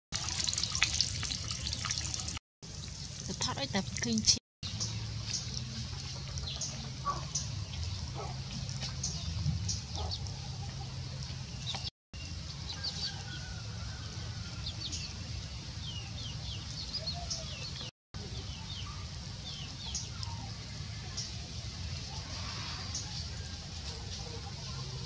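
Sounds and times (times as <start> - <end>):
birds chirping high: 4.6 - 13.6, 14.2 - 23.3.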